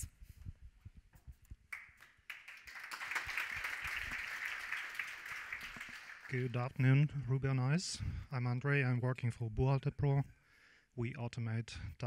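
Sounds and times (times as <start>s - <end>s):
audience applauding: 1.7s - 6.6s.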